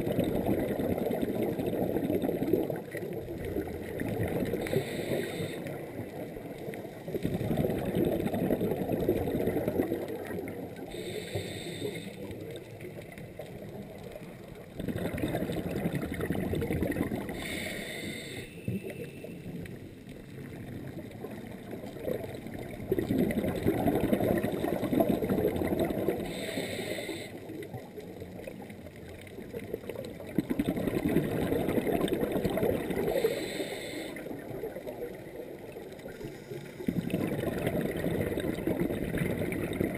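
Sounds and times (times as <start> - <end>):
exhaled air bubbling: 0.0 - 39.9
regulator inhale hiss: 4.6 - 6.0, 10.9 - 12.4, 17.3 - 18.7, 26.2 - 27.5, 33.0 - 34.3.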